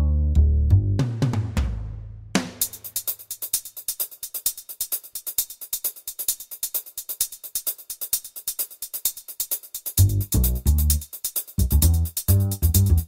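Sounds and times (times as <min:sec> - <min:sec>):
bass: 0:00.0 - 0:02.5, 0:10.0 - 0:13.0
fast hi-hat ticking: 0:02.4 - 0:13.0.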